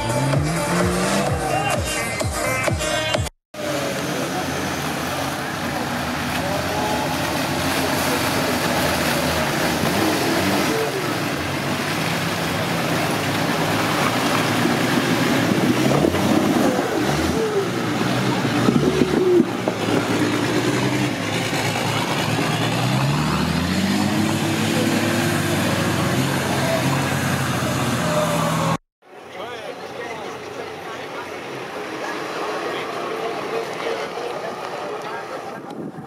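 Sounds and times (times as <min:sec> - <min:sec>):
engine revving under load: 0:00.0 - 0:01.6, 0:03.6 - 0:28.8.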